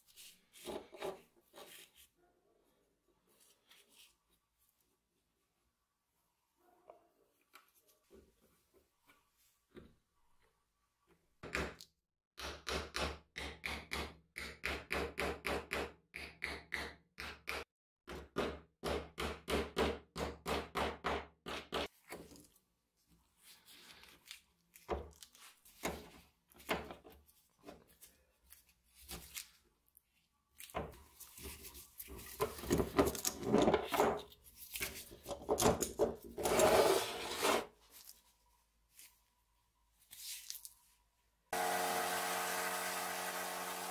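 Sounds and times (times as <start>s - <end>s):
rubbing and handling noise: 0.0s - 2.2s, 21.9s - 41.2s.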